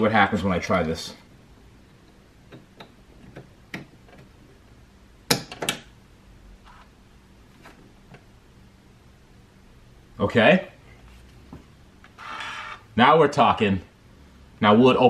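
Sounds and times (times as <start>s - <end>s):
faint hum: 0.0s - 15.0s.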